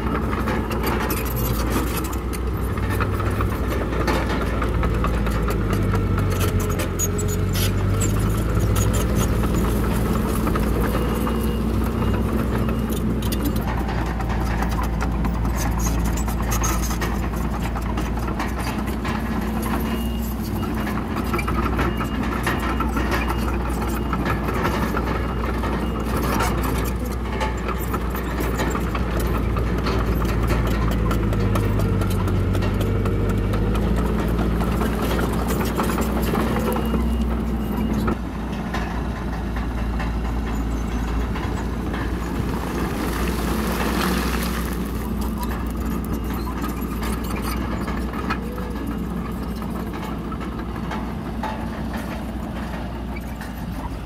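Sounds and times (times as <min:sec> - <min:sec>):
bulldozer diesel engine under load: 0:00.0 - 0:54.0
stone scraping and crunching: 0:42.3 - 0:46.0.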